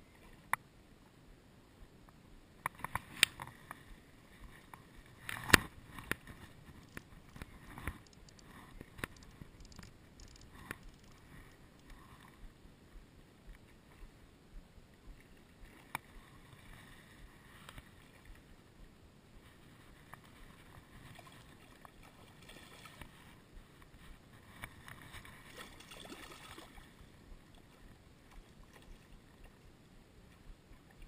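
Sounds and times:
fishing line rustling in grass: 2.9 - 12.4
sharp clicks: 6.8 - 11.2.

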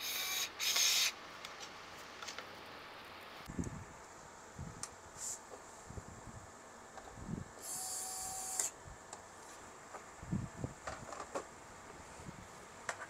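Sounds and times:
electric screwdriver whirring: 0.0 - 1.2, 7.6 - 8.7.

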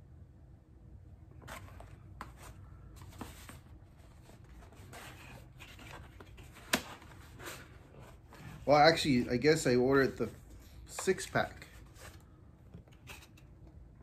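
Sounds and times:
cardboard rustling and scraping: 1.4 - 9.3, 10.2 - 12.3.

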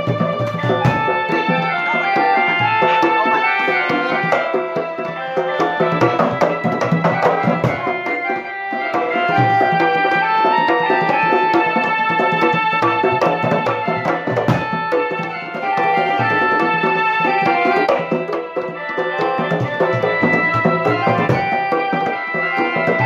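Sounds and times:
drums beating steady rhythm: 0.0 - 23.0
electronic keyboard melody: 0.0 - 23.0.

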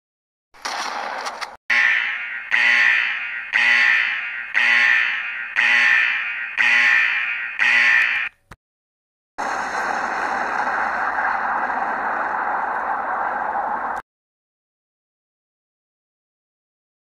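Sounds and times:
alarm tones: 1.7 - 8.4.

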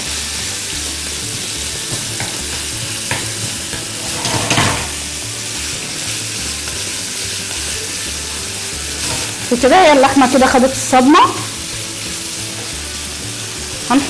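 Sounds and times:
meat sizzling in a frying pan: 0.0 - 14.0
spoon knocking against pan: 1.3 - 5.0.

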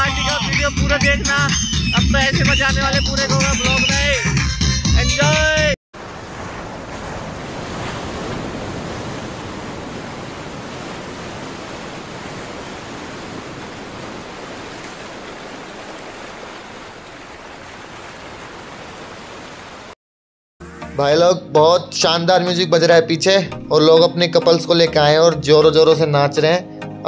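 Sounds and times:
waves breaking on beach: 6.0 - 20.0.

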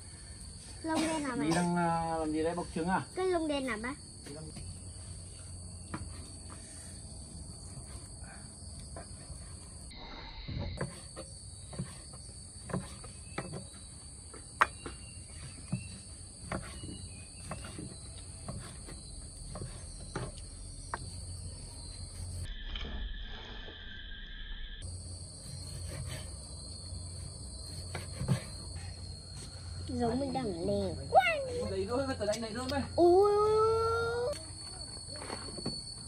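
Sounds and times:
high-pitched insect drone: 0.0 - 36.0
knife chopping on wooden board: 16.4 - 21.0.

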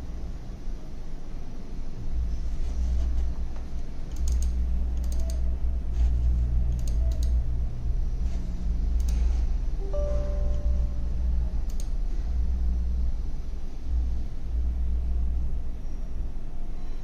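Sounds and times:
steady low hum: 0.0 - 17.0
computer mouse double-clicks: 4.1 - 5.5, 6.7 - 7.4, 11.7 - 11.9.

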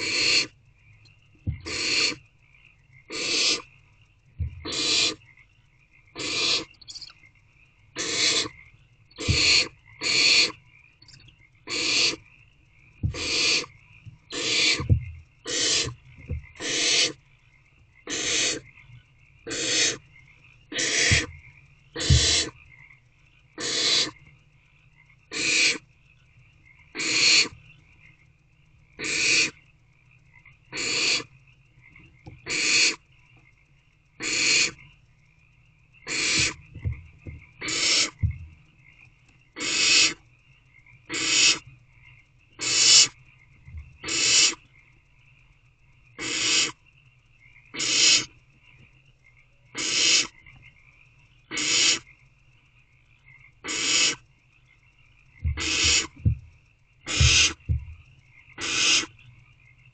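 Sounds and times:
owl chicks hissing: 0.0 - 0.6, 1.5 - 2.2, 3.1 - 3.7, 4.4 - 5.2, 6.2 - 7.1, 8.0 - 10.6, 11.7 - 12.2, 13.0 - 13.7, 14.3 - 16.0, 16.6 - 17.2, 18.0 - 18.7, 19.5 - 20.0, 20.7 - 21.4, 22.0 - 22.6, 23.6 - 24.2, 25.3 - 25.8, 27.0 - 27.6, 29.0 - 29.6, 30.7 - 31.3, 32.4 - 33.0, 34.2 - 34.8, 36.0 - 36.9, 37.6 - 38.3, 39.6 - 40.2, 41.1 - 41.6, 42.6 - 43.2, 44.0 - 44.6, 46.2 - 46.8, 47.7 - 48.3, 49.8 - 50.4, 51.5 - 52.0, 53.6 - 54.2, 55.4 - 56.3, 57.0 - 57.8, 58.6 - 59.2.

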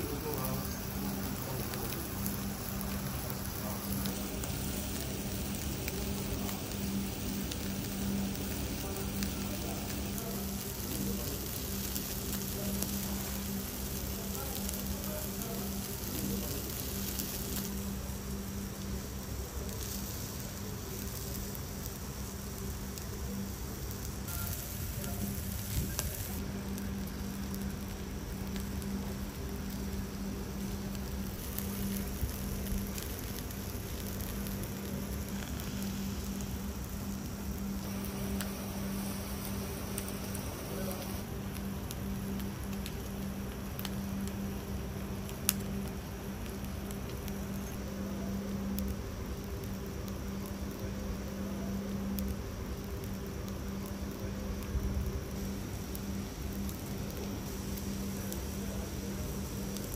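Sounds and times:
low steady hum: 0.0 - 59.9
meat sizzling on grill: 0.0 - 59.9.

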